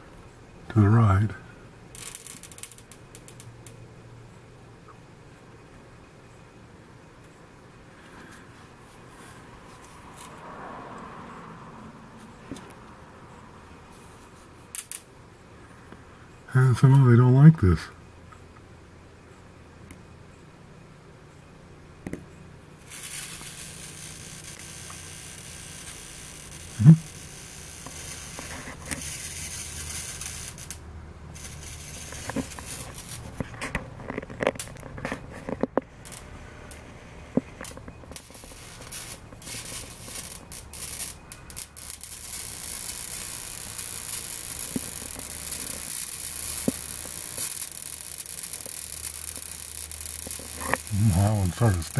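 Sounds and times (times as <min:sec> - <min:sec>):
bug zapper snapping and crackling: 0:01.9 - 0:03.8, 0:14.7 - 0:15.1, 0:22.8 - 0:36.8, 0:37.5 - 0:51.9.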